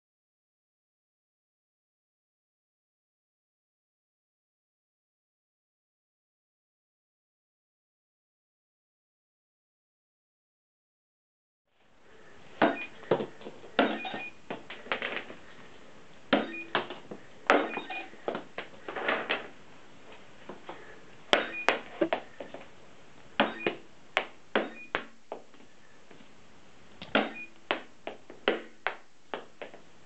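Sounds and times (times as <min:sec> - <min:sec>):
short electronic beeps: 0:12.6 - 0:13.0, 0:13.8 - 0:14.4, 0:16.4 - 0:16.9, 0:17.6 - 0:18.2, 0:21.4 - 0:22.1, 0:23.4 - 0:23.8, 0:24.6 - 0:25.0, 0:27.2 - 0:27.6
balls bouncing: 0:16.3 - 0:19.5, 0:23.4 - 0:25.5, 0:27.0 - 0:29.8.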